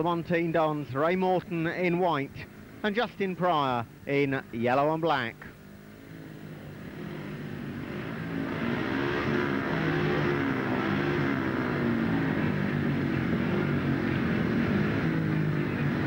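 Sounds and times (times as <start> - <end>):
motorcycle engines revving: 5.6 - 16.0.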